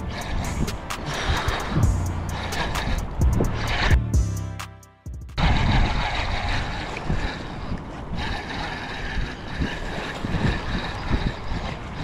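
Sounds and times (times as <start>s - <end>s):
fishing reel gears whirring: 0.0s - 4.0s, 5.4s - 12.0s
low thumps and rumble: 0.0s - 6.0s.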